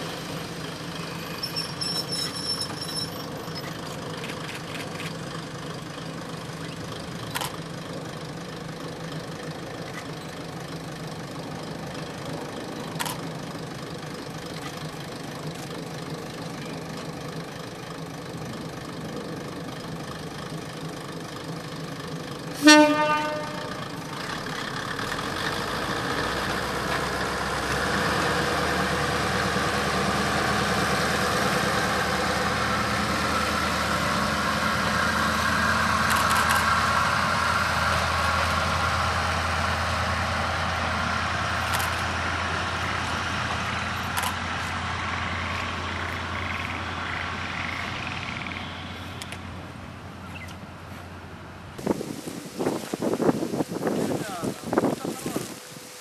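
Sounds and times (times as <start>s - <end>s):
diesel railcar engine: 0.0s - 56.0s
train horn toot: 22.6s - 24.0s.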